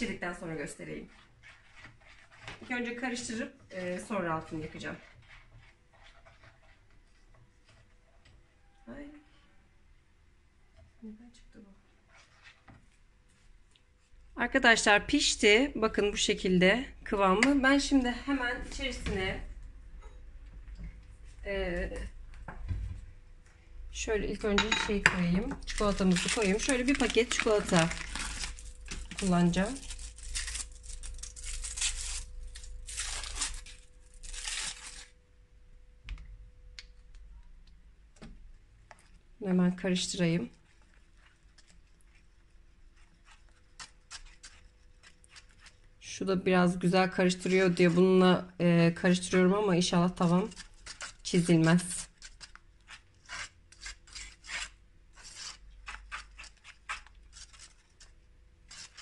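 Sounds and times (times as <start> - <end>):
whisk scraping a pot: 1.0 - 7.9, 40.0 - 45.9, 47.2 - 48.3, 49.3 - 59.0
wrapper tearing and crinkling: 25.6 - 35.2.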